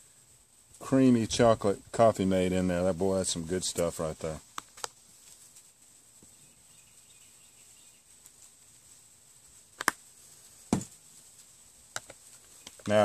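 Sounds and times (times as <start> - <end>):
sharp plastic clacks: 9.8 - 10.0, 11.9 - 13.0.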